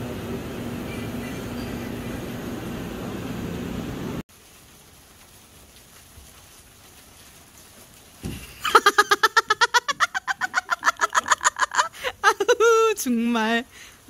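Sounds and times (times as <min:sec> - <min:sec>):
person cackling with laughter: 0:08.4 - 0:12.7.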